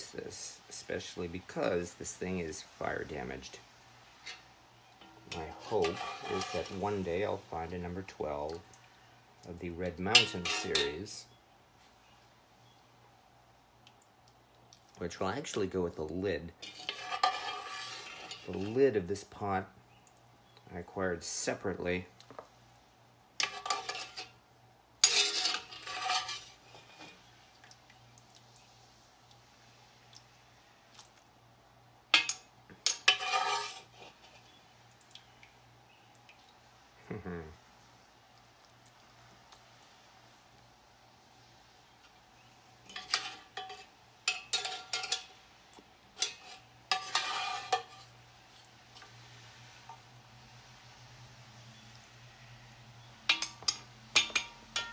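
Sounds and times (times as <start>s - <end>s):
metal clanking on cast iron pot: 4.2s - 7.0s, 9.9s - 11.2s, 16.6s - 18.8s, 23.4s - 24.4s, 25.0s - 27.2s, 32.1s - 34.6s, 42.8s - 45.4s, 46.2s - 48.1s, 53.2s - 54.9s.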